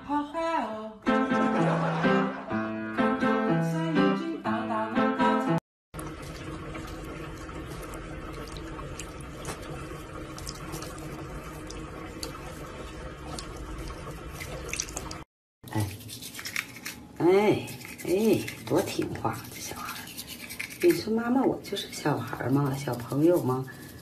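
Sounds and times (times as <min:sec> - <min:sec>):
cat drinking water: 0:06.0 - 0:15.2
tap water running into sink: 0:06.0 - 0:15.2.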